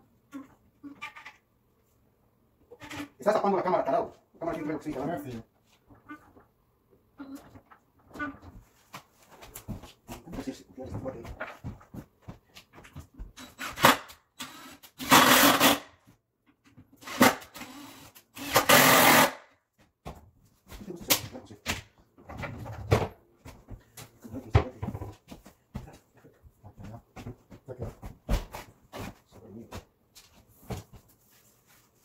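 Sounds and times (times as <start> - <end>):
handheld power tool running: 13.6 - 15.8.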